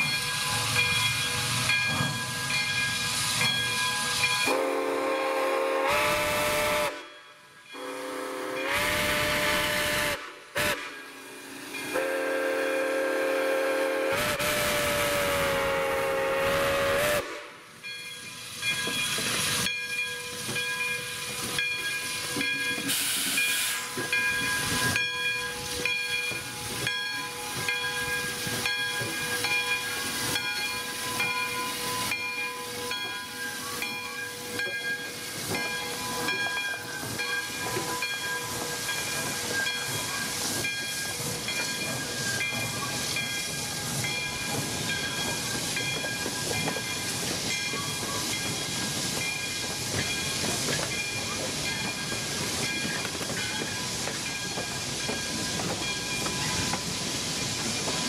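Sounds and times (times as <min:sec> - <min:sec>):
steam locomotive whistle: 0:04.4 - 0:07.2, 0:07.8 - 0:17.7
steam hissing: 0:07.8 - 0:58.0.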